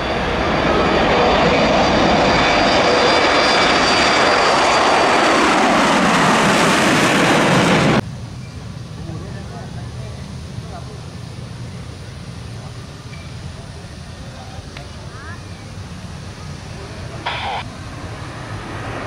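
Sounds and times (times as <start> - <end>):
jet engines at takeoff: 0.0 - 19.0
faint high whine: 8.0 - 19.0.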